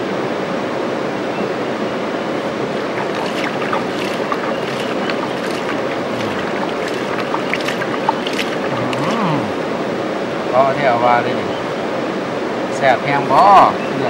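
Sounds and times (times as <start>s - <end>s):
water splashing and dripping: 2.9s - 9.5s.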